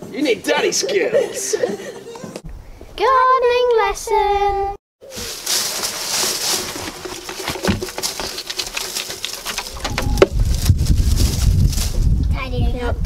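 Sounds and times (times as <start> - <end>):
dead leaves rustling: 5.0 - 12.2.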